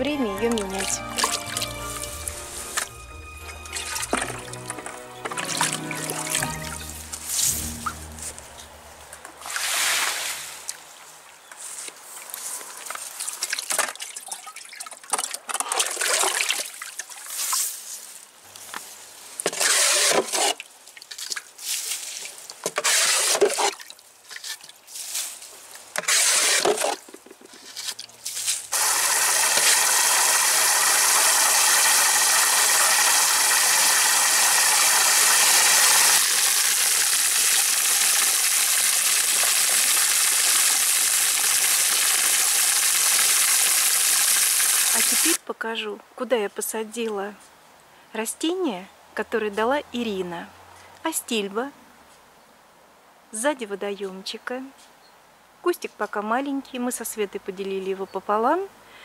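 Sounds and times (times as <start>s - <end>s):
bucket bailing water splashing: 0.0s - 10.8s, 28.7s - 45.4s
hose jet pouring into pond: 0.4s - 8.4s, 9.4s - 10.8s, 19.4s - 20.6s, 22.1s - 23.9s, 26.0s - 27.0s, 28.7s - 45.4s.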